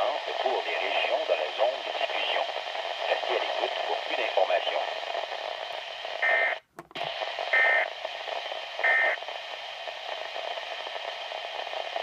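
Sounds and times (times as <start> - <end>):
radio hiss: 0.0 - 12.0.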